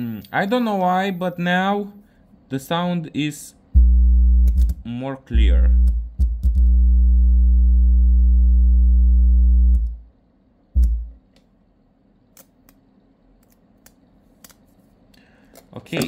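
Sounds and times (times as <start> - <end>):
low-pitched test tone hum: 3.7 - 11.3.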